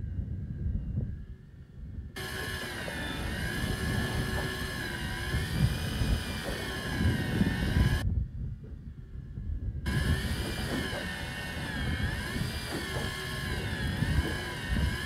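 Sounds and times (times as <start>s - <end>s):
wind and water rumble: 0.0s - 15.0s
fishing reel motor whine: 2.2s - 8.0s, 9.9s - 15.0s.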